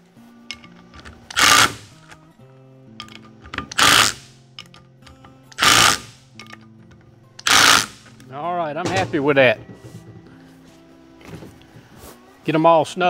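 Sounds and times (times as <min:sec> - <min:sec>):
impact driver hammering: 0:00.5 - 0:02.2, 0:03.0 - 0:06.6, 0:07.4 - 0:08.2.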